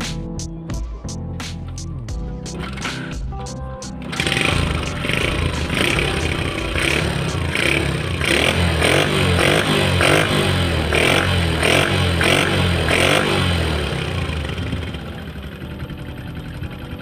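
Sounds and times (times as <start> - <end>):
motorcycle engine revving: 4.0 - 16.9.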